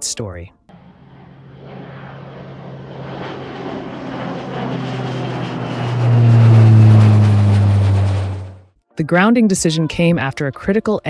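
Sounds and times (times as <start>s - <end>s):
jet aircraft: 0.7s - 8.8s
deep steady hum: 4.6s - 8.6s.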